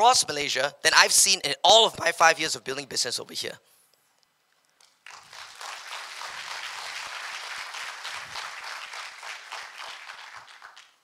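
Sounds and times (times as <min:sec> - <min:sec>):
audience applause: 0:05.1 - 0:11.0.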